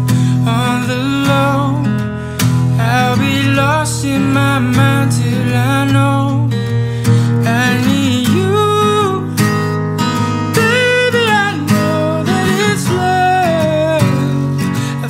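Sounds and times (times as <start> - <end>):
person singing wordless melody: 0.0 - 2.1, 2.8 - 6.6, 7.3 - 9.4, 10.6 - 15.0
acoustic guitar strumming: 0.0 - 15.0.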